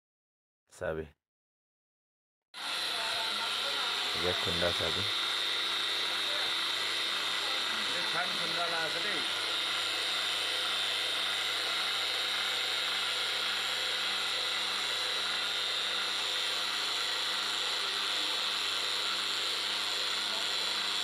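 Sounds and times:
electric grain grinder whining: 0:02.6 - 0:21.0.

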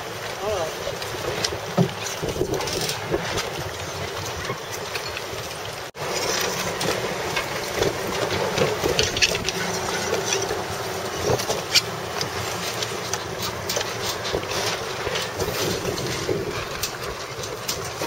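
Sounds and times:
boat motor running: 0:00.0 - 0:18.0
wind noise on microphone: 0:00.9 - 0:05.4, 0:14.0 - 0:18.0.

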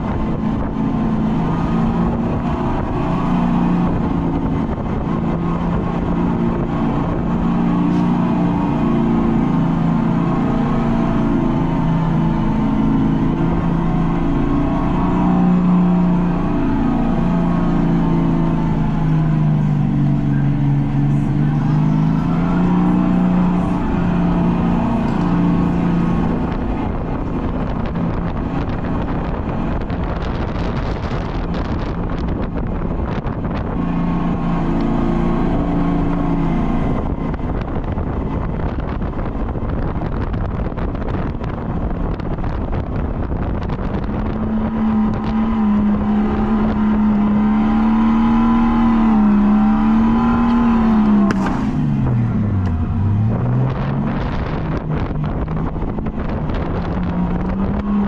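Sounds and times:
rushing noise: 0:00.0 - 0:40.8
wind buffeting microphone: 0:00.0 - 0:58.0.

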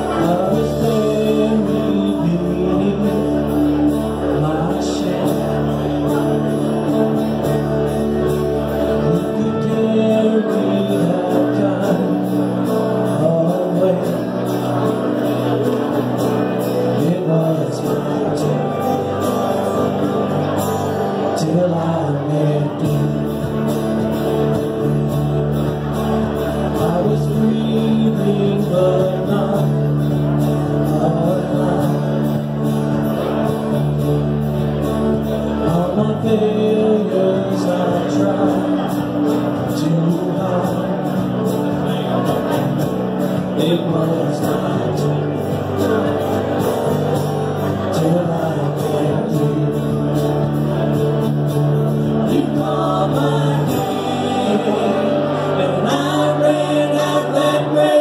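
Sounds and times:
worship band playing: 0:00.0 - 0:58.0
voices singing along: 0:35.0 - 0:58.0.

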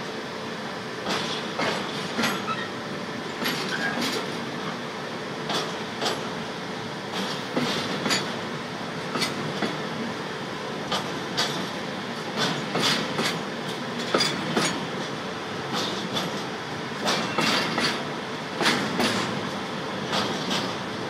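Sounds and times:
train wheels rumbling on rail: 0:00.0 - 0:21.0
wheels clacking over track joints: 0:05.5 - 0:06.3, 0:10.9 - 0:14.9, 0:15.7 - 0:20.9.

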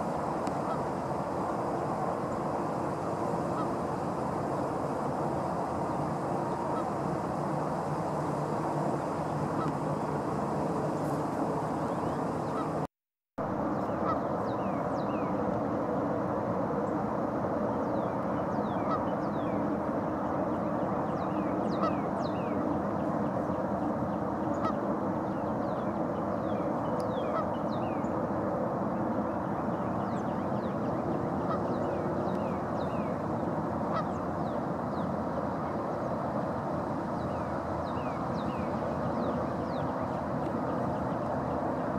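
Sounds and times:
geese honking: 0:09.5 - 0:09.8, 0:12.4 - 0:12.8, 0:31.4 - 0:31.8, 0:33.9 - 0:34.2.

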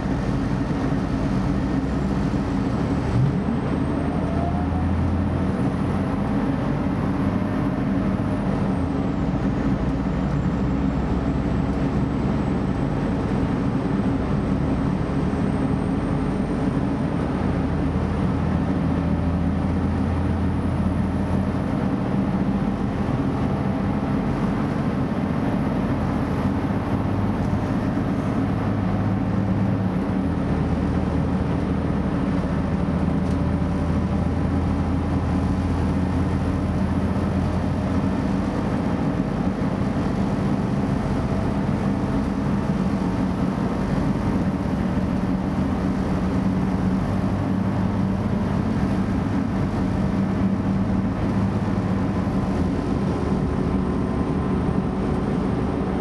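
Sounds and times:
train engine drone: 0:00.0 - 0:56.0.

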